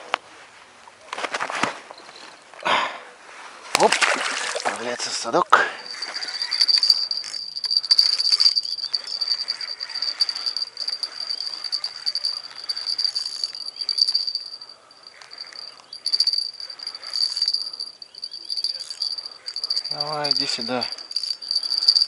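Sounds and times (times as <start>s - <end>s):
fishing reel rattling and clicking: 5.9s - 22.0s.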